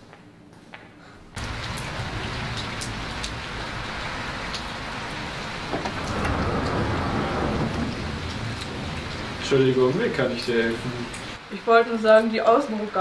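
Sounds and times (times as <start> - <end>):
raindrop ticks: 1.4 - 11.4
steady rain hiss: 1.4 - 13.0.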